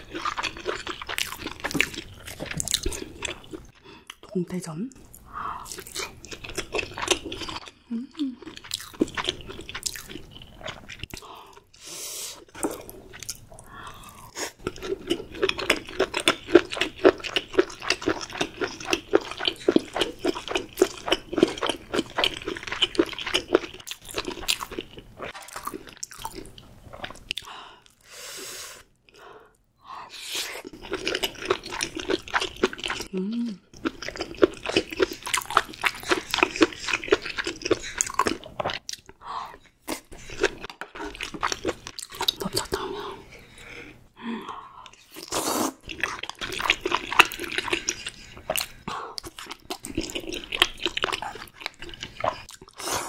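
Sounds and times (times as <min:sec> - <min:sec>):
crunchy chewing: 0:00.0 - 0:04.2, 0:05.1 - 0:07.7, 0:08.4 - 0:11.6, 0:12.5 - 0:27.5, 0:33.8 - 0:42.8, 0:44.9 - 0:53.0.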